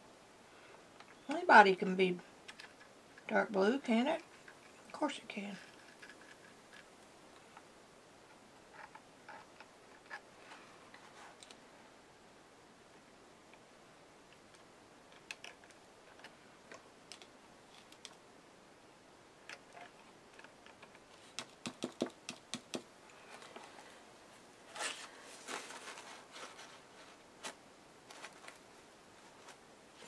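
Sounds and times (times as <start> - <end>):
scratchy rustle: 24.6 - 30.0.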